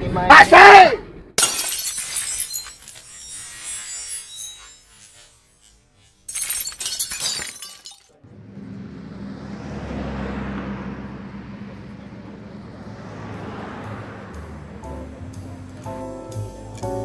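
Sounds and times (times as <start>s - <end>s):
glass shattering: 1.4s - 8.2s
low engine hum: 8.2s - 16.8s
street traffic noise: 8.2s - 17.0s.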